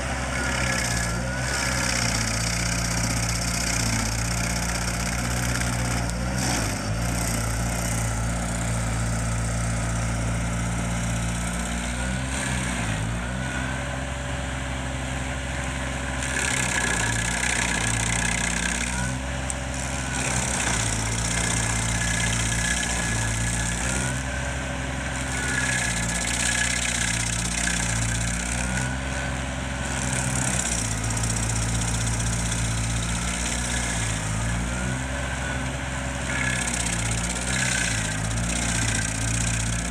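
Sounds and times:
stump grinder engine running: 0.0s - 39.9s
hiss of grinding wood chips: 16.2s - 24.4s, 25.1s - 39.9s.

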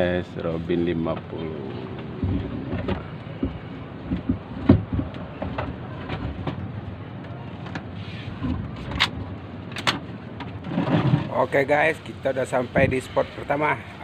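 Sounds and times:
sharp knocks: 2.2s - 6.6s.

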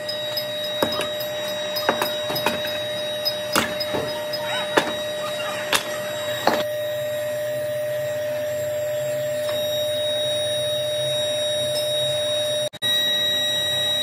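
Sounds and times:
air blower whirring: 0.0s - 6.7s.

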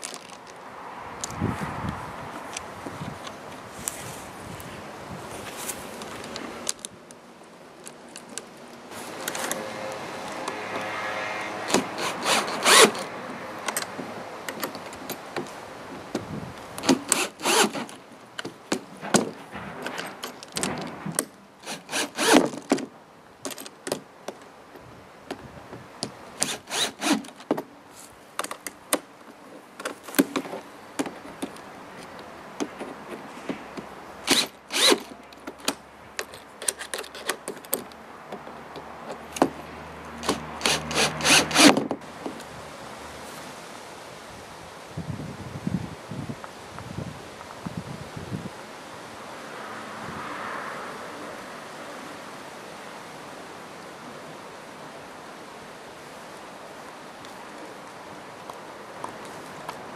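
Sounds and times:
cordless drill running: 40.2s - 41.7s.

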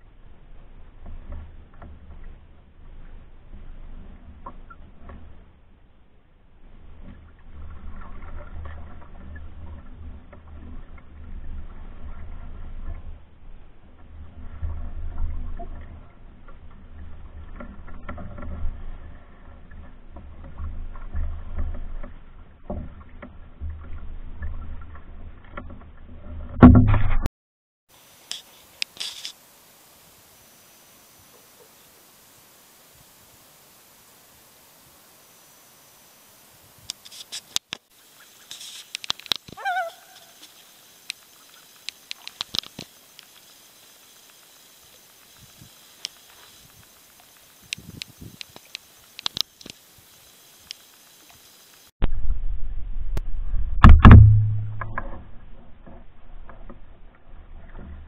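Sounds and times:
canoe paddle strokes: 0.0s - 27.0s, 27.9s - 51.9s, 53.8s - 58.0s
water along the hull: 0.0s - 27.0s, 27.9s - 58.0s
sharp clicks and knocks: 38.5s - 39.6s, 53.8s - 56.9s
loon quavering call: 39.5s - 40.6s
low rumble: 52.0s - 58.0s.

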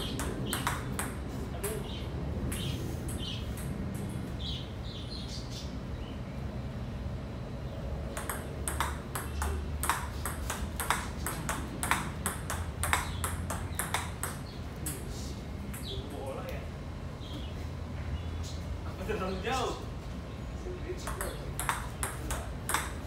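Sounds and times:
steady low hum: 0.0s - 23.0s
table tennis ball clicks: 0.1s - 1.8s, 8.1s - 15.0s, 21.1s - 23.0s.

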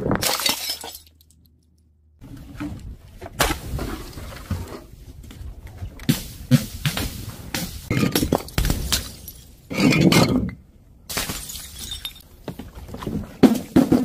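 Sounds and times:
objects crashing and breaking: 0.0s - 1.3s, 6.4s - 10.5s
glass shattering: 0.2s - 1.3s, 7.9s - 10.3s, 11.1s - 12.2s.

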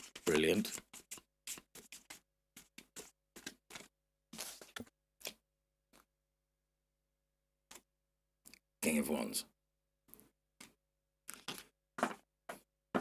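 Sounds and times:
cards sliding rustle: 0.0s - 5.4s.

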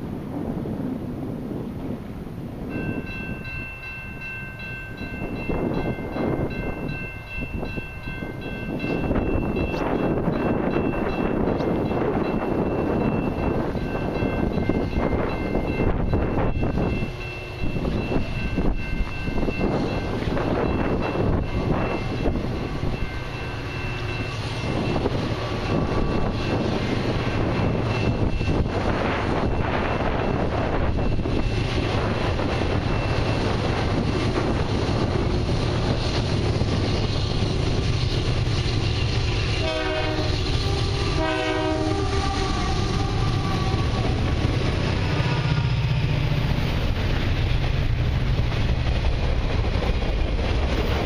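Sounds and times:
freight train rumble: 0.0s - 51.0s
wind buffeting microphone: 0.0s - 51.0s
distant locomotive horn: 39.4s - 46.1s.

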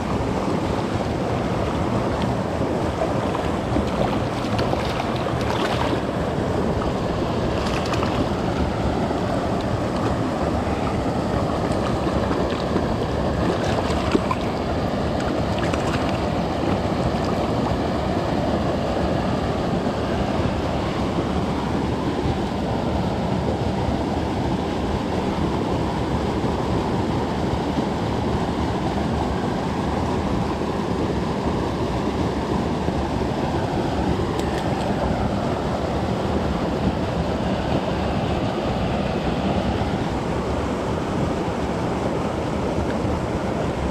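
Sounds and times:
creek water running: 0.0s - 25.9s, 33.0s - 43.9s
short water splashes: 3.0s - 8.6s, 9.6s - 17.8s.

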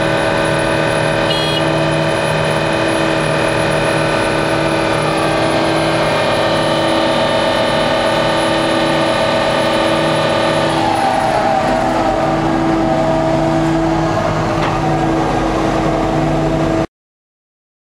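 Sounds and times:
diesel engine running: 0.0s - 16.9s
steady whine: 0.0s - 16.9s.

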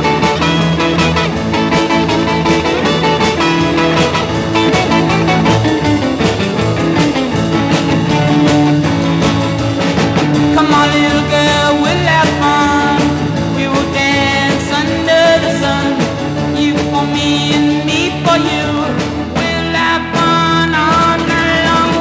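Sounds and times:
rock and roll song: 0.0s - 22.0s
person singing: 10.4s - 22.0s.

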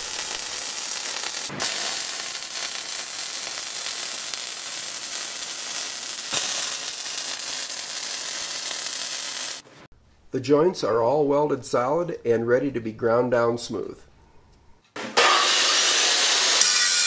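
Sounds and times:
welder arc sizzling: 0.0s - 9.8s, 15.2s - 17.0s.

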